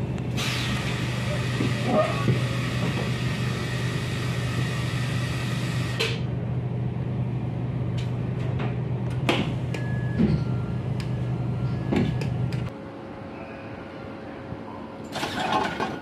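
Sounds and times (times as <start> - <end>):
train low hum: 0.0 - 16.0.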